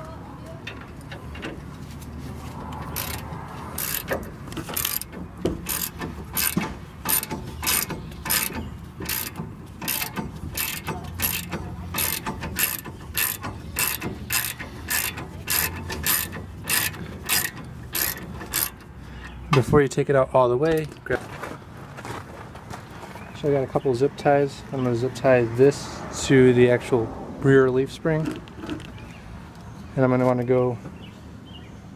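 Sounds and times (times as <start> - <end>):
socket ratchet clicking: 2.8 - 18.9.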